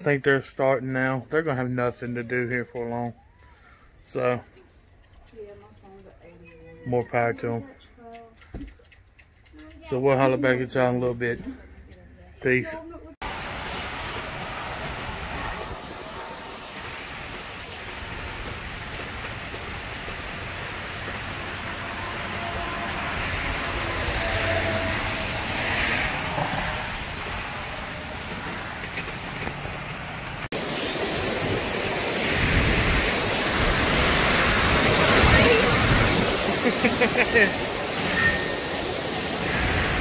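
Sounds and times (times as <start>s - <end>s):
strong wind through bamboo and trees: 13.2s - 40.0s.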